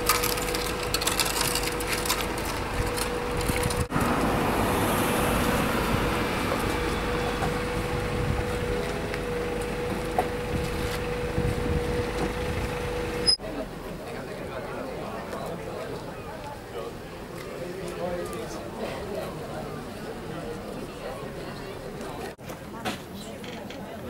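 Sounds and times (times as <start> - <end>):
forklift engine humming: 0.0 - 14.4.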